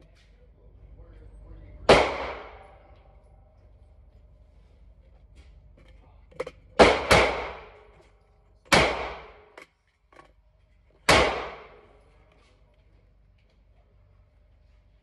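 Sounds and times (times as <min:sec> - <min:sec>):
gunshots echoing indoors: 0:01.8 - 0:03.4, 0:06.8 - 0:08.0, 0:08.7 - 0:09.6, 0:11.1 - 0:12.0.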